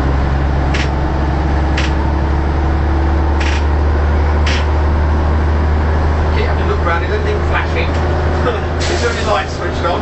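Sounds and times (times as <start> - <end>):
bus engine drone: 0.0 - 10.0
short air hisses: 8.8 - 9.4.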